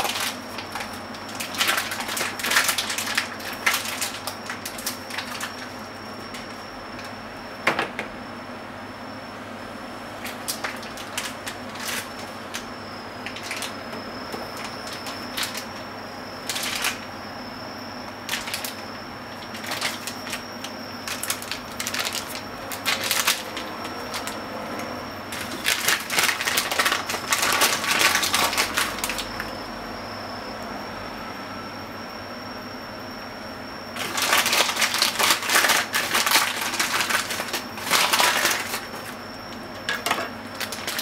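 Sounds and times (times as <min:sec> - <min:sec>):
kitchen items clicking and scraping: 0:34.0 - 0:39.2, 0:39.8 - 0:41.0.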